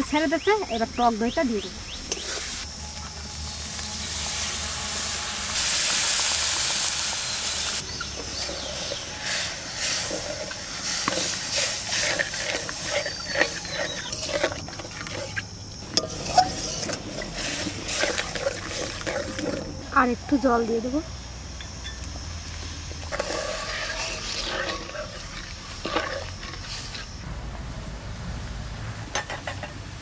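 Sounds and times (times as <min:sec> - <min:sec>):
curd sizzling in hot oil: 0:01.8 - 0:20.1, 0:21.9 - 0:27.3
spatula scraping a wok: 0:02.0 - 0:02.6, 0:06.9 - 0:19.9, 0:23.0 - 0:27.2
curry sputtering: 0:07.9 - 0:20.4, 0:23.1 - 0:27.2.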